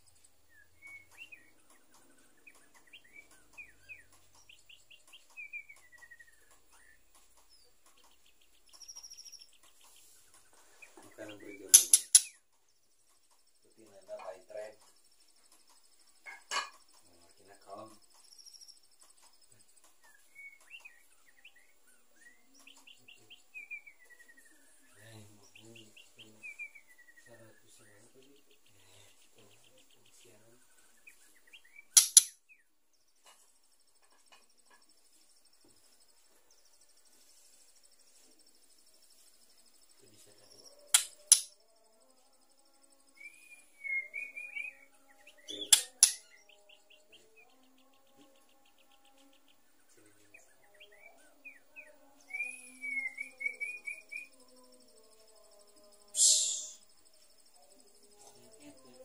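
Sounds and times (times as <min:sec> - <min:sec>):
bird calling: 0:00.0 - 0:12.4, 0:43.2 - 0:46.7, 0:56.2 - 0:56.8
faint insect buzz: 0:00.0 - 0:59.0
bird chirps and slurred whistles: 0:00.4 - 0:01.5, 0:43.1 - 0:46.9, 0:52.3 - 0:54.4, 0:56.1 - 0:57.0
soft bird warbling: 0:56.2 - 0:56.9.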